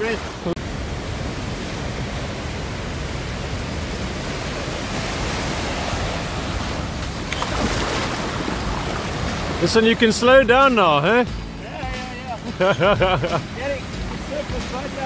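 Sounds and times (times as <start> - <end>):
small waves breaking: 0.0 - 15.0
wind: 0.0 - 15.0.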